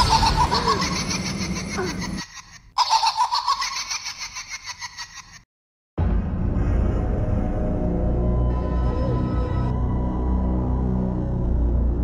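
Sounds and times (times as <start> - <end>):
high-pitched shaky laughing voice: 0.0 - 5.4.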